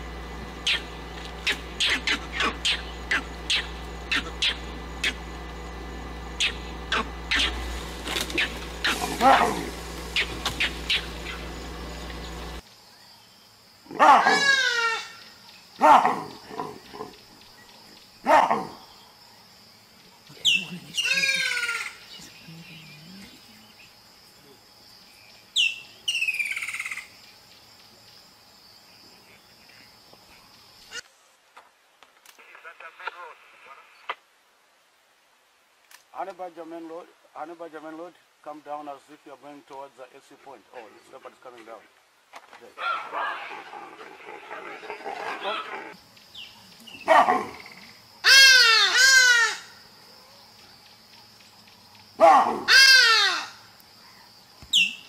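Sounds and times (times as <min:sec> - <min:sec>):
animal calling: 0:00.0 - 0:12.6, 0:13.9 - 0:17.2, 0:20.3 - 0:23.6, 0:46.8 - 0:49.8, 0:52.2 - 0:55.0
high insect drone: 0:00.0 - 0:31.3, 0:43.2 - 0:55.0.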